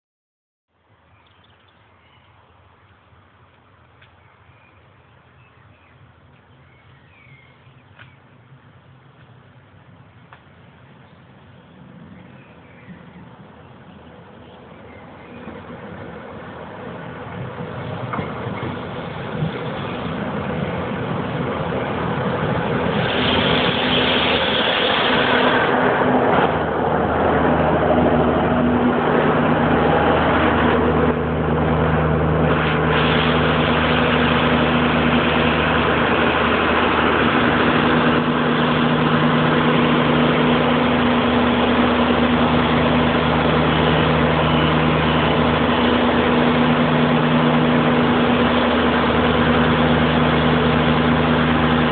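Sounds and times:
railcar pulling into station: 0:01.7 - 0:51.9
diesel engines idling: 0:02.4 - 0:51.9
brake squeal: 0:18.1 - 0:20.9, 0:22.9 - 0:25.8.

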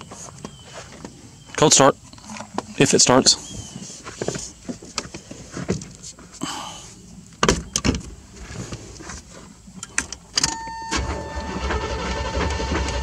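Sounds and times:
ignition clicks and rattles: 0:09.8 - 0:13.0
starter cranking engine: 0:10.6 - 0:13.0.

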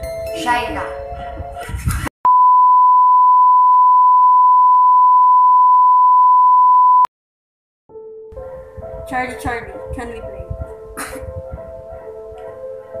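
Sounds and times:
pure test tone beep: 0:02.3 - 0:07.1.

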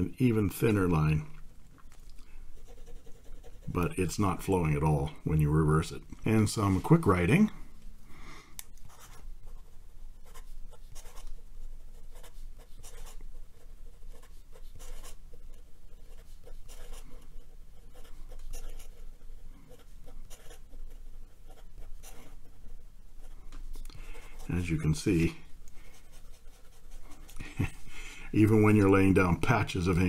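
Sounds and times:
pen nib writing on paper: 0:17.8 - 0:22.4.

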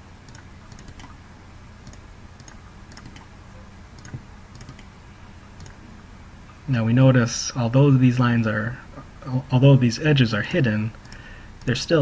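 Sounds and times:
low electrical hum: 0:00.0 - 0:12.0
computer mouse clicking: 0:00.3 - 0:01.2, 0:01.8 - 0:03.3, 0:04.0 - 0:04.9, 0:05.6 - 0:05.8, 0:11.0 - 0:11.8.

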